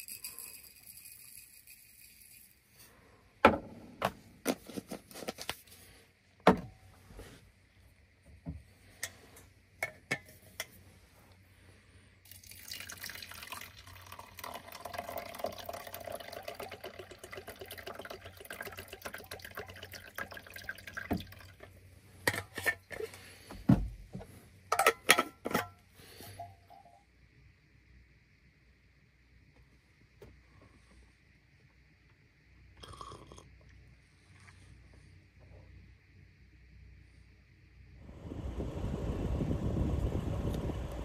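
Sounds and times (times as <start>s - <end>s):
water running: 12.3s - 21.8s.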